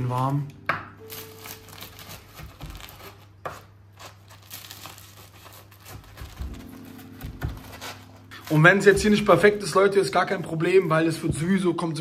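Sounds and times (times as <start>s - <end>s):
knife crunching through flatbread: 1.1s - 9.0s.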